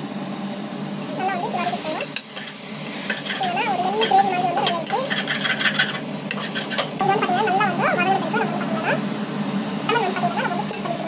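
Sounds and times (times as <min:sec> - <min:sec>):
food sizzling: 0:00.0 - 0:11.0
metal spatula scraping a pot: 0:02.3 - 0:07.4, 0:10.0 - 0:11.0.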